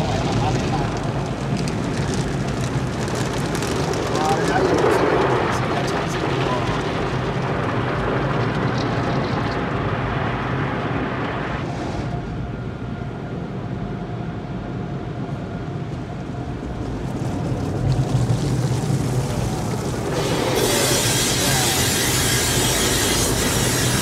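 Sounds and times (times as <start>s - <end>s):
car wash brushes rumbling: 0.0s - 12.3s, 15.2s - 24.0s
water spray hissing on windshield: 18.0s - 24.0s.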